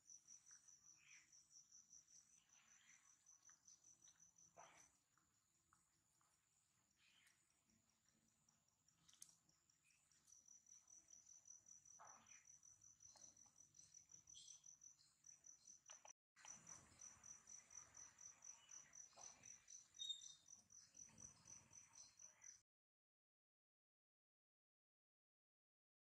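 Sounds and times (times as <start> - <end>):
faint cricket chirping: 0.0 - 22.6.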